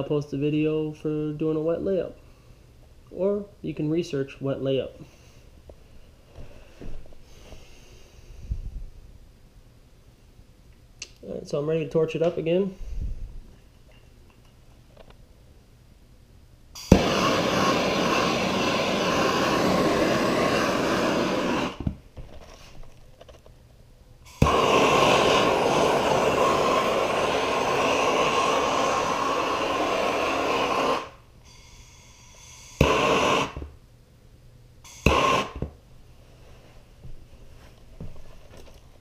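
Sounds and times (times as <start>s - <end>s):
torch ignition click: 16.8s - 21.8s, 34.9s - 35.7s
gas torch hissing: 16.8s - 22.0s, 24.2s - 33.8s, 34.8s - 35.8s.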